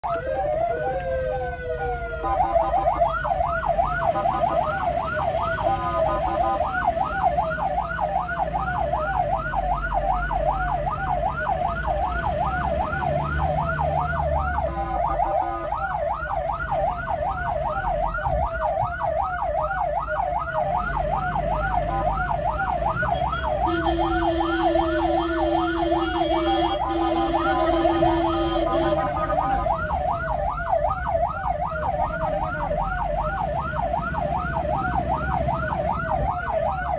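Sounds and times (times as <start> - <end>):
ambulance siren yelping: 0.0 - 36.9
engine and road rumble: 0.0 - 36.9
vehicle horn: 23.1 - 29.6.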